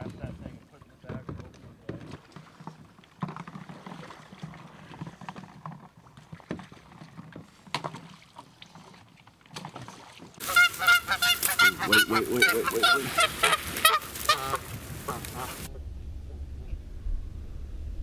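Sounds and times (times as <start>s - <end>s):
kayak paddling in water: 0.0s - 15.9s
paddle knocking against hull: 0.8s - 14.3s
geese honking: 10.4s - 15.7s.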